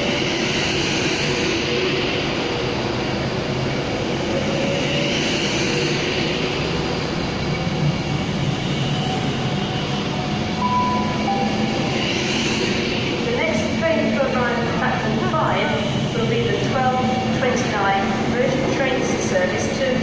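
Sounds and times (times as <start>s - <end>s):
electric train hum: 0.0s - 20.0s
short high beep: 10.6s - 11.9s.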